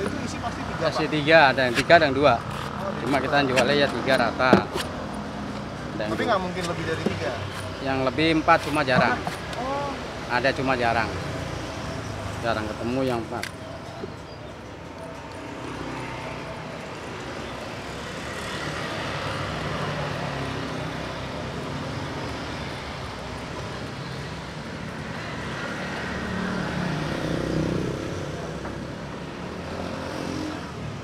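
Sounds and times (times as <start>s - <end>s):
passing vehicles hum: 0.0s - 31.0s.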